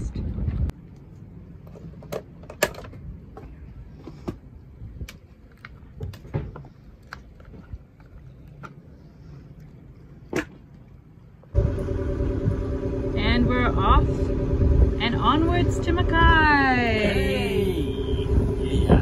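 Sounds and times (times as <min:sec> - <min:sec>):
low steady rumble: 0:10.8 - 0:19.0.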